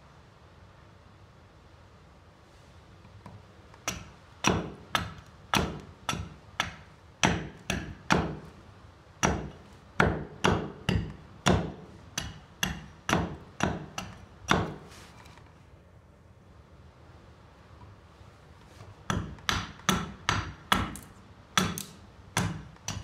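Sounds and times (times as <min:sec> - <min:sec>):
axe chopping wood: 0:03.8 - 0:08.6, 0:09.2 - 0:14.9, 0:19.0 - 0:23.0.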